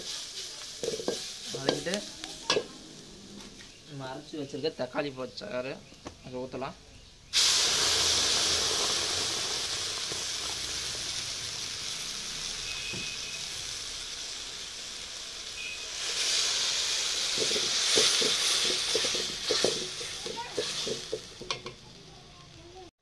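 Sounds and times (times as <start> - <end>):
paste sizzling in hot oil: 0.0 - 5.0, 7.2 - 22.9
ladle scraping a pot: 0.8 - 1.9, 17.3 - 21.8.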